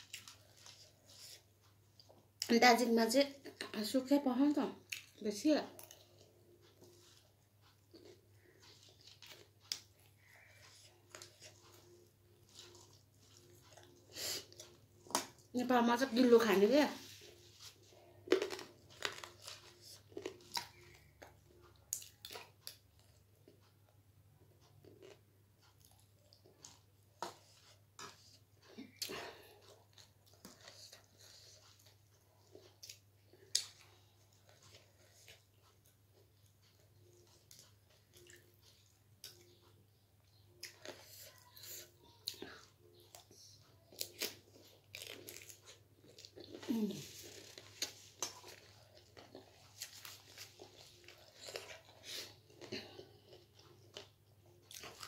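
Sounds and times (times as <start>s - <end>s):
soft chewing: 0.0s - 55.0s
crunchy snack chewing: 17.6s - 21.3s, 43.9s - 55.0s
crunchy snack crunching: 18.2s - 21.1s.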